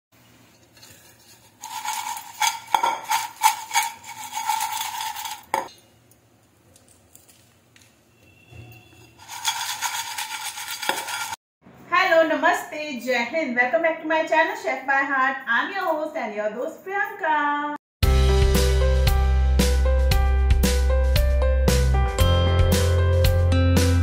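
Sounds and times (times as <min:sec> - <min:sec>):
chips rattling in a steel bowl: 0:00.8 - 0:05.7, 0:09.2 - 0:11.4.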